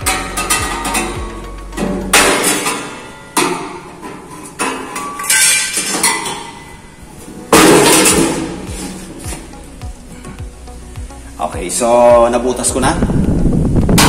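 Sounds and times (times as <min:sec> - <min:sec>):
hammer striking steel sheet: 0:00.0 - 0:06.8, 0:07.5 - 0:09.4.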